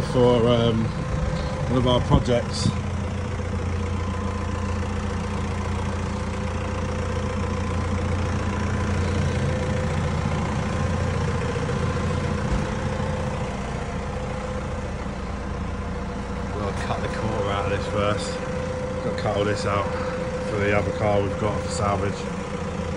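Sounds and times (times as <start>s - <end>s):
machine engine idling: 0.0s - 22.9s.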